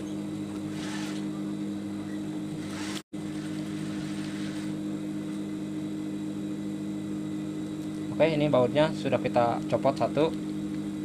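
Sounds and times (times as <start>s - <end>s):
low electric hum: 0.0s - 11.0s.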